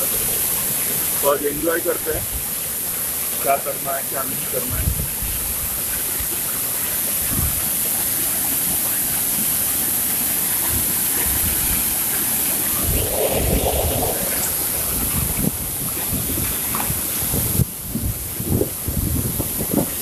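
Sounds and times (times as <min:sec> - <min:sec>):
waterfall pouring into a pool: 0:00.0 - 0:12.9
wind buffeting microphone: 0:12.6 - 0:20.0.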